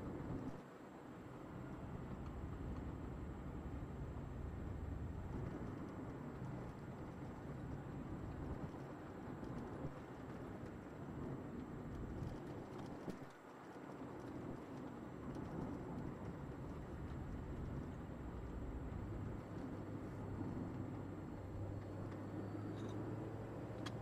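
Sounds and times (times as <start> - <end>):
tyre and road rumble: 14.0 - 24.0
car engine drone: 16.4 - 24.0.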